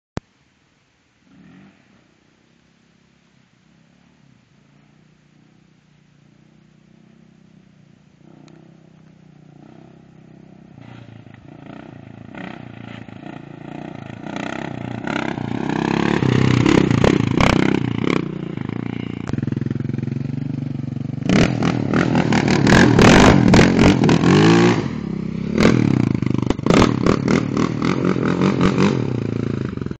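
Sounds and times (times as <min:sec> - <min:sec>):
quad engine revving: 0:08.2 - 0:30.0.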